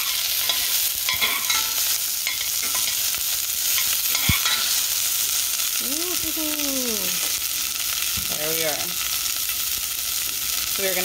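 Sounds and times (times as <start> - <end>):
onion and garlic sizzling in oil: 0.0 - 11.0.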